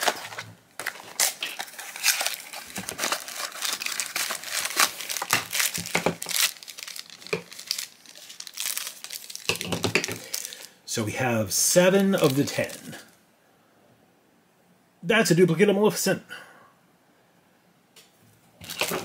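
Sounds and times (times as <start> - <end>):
packaging crinkling: 0.0 - 10.8, 11.9 - 13.2, 18.6 - 19.0.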